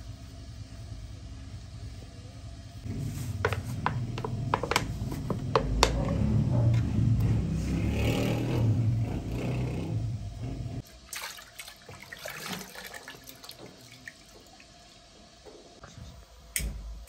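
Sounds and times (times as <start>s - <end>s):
low rumble: 0.0s - 10.8s.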